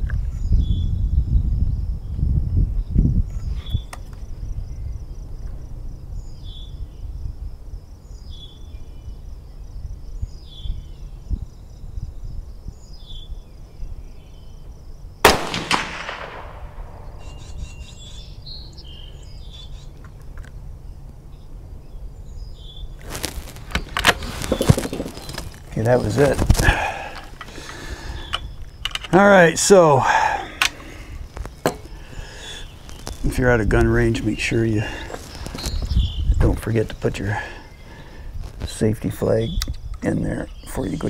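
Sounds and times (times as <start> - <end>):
wind rumble on microphone: 0.0 - 29.0, 30.0 - 41.0
rifle shot with echo: 15.2 - 17.4
faint high chirp: 17.0 - 20.0.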